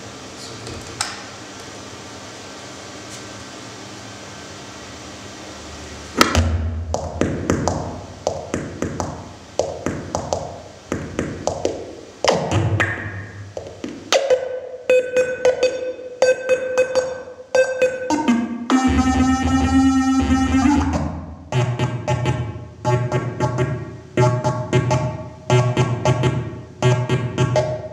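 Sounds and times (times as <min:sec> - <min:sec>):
steady electronic hum: 0:00.0 - 0:27.9
pulsing pitched feedback tone: 0:14.8 - 0:25.0
sharp electronic clicks ringing: 0:14.9 - 0:18.3.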